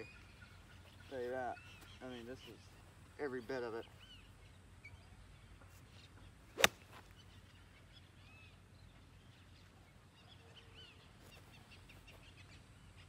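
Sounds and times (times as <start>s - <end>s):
faint bird chirps: 0.0s - 13.0s
golf club striking ball: 6.6s - 6.9s
golf club swoosh: 6.6s - 7.0s.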